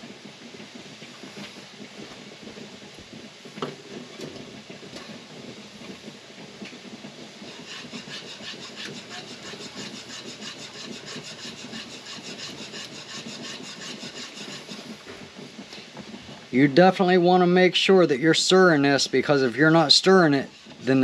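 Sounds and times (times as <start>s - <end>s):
whisk scraping pot of jam: 7.4s - 15.0s, 18.5s - 21.0s.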